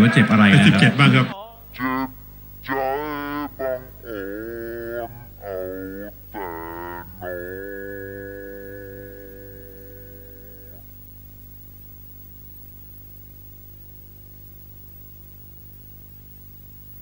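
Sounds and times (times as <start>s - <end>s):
faint low drone: 2.1s - 11.8s.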